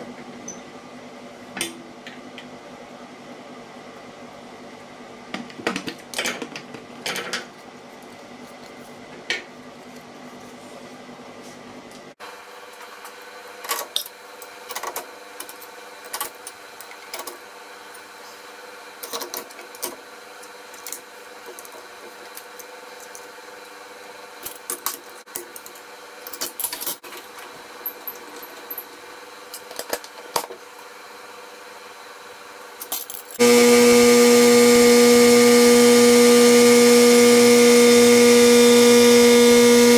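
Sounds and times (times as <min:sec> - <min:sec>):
table saw motor humming: 0:33.4 - 0:39.9.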